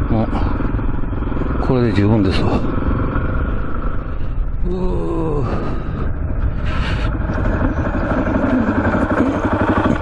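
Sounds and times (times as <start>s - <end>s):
motorcycle engine running: 0.0s - 4.3s, 6.1s - 10.0s.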